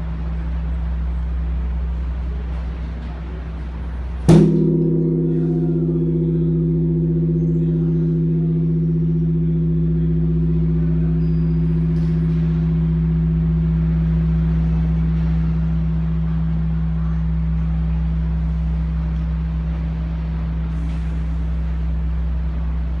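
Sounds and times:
bronze bell ringing: 0:04.4 - 0:17.4.

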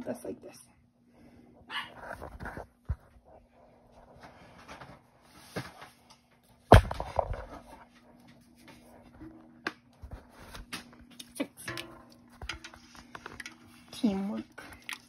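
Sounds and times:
spatula stirring in a pot: 0:11.6 - 0:15.0.

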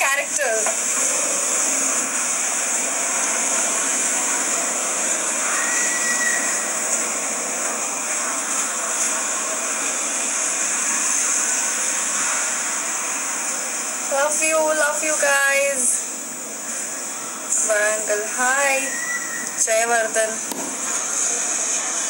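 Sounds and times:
steady hiss: 0:00.0 - 0:22.0.

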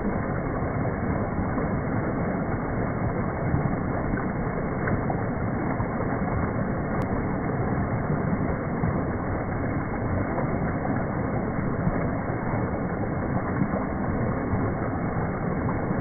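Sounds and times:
waterfall splashing into pond: 0:00.0 - 0:16.0.

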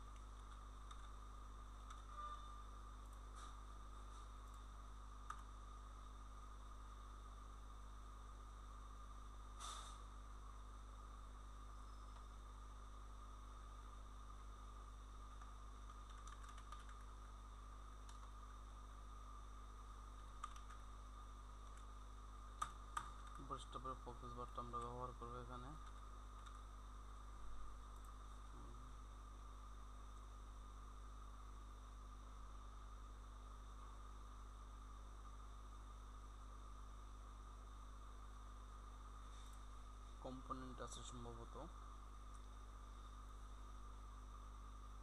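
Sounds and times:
electrical hum and hiss: 0:00.0 - 0:45.0
keyboard and mouse clicks: 0:00.1 - 0:01.2, 0:05.2 - 0:05.5, 0:15.4 - 0:17.1, 0:20.4 - 0:20.8.

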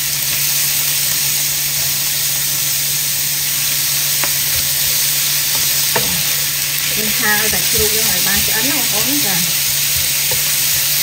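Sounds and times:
food sizzling in a frying pan: 0:00.0 - 0:11.0
spatula tapping pan: 0:04.2 - 0:11.0.

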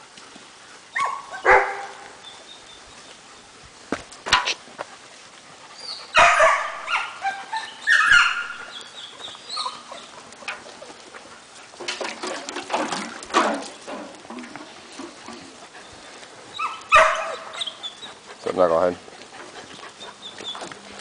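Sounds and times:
dogs barking and yelping: 0:00.8 - 0:03.6, 0:04.2 - 0:21.0.

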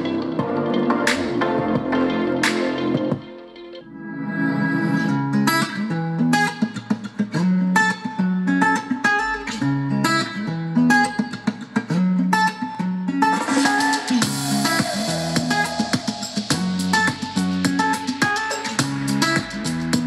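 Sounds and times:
bass notes: 0:00.0 - 0:03.3, 0:14.2 - 0:18.1
plucked guitar melody: 0:00.0 - 0:04.0, 0:04.7 - 0:20.0.

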